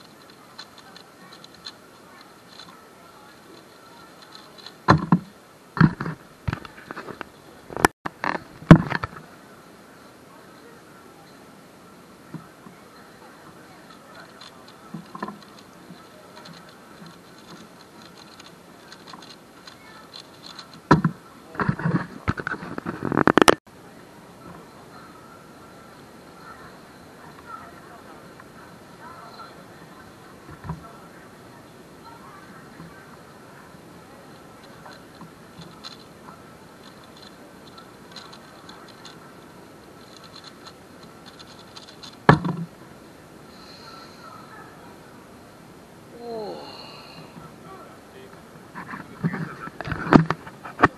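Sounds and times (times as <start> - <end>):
speedcube layers clicking: 0.0 - 2.9, 3.5 - 4.9, 13.9 - 20.9, 34.8 - 36.1, 36.8 - 39.2, 40.0 - 42.3
puzzle cube clicking: 16.4 - 20.9, 40.0 - 42.3.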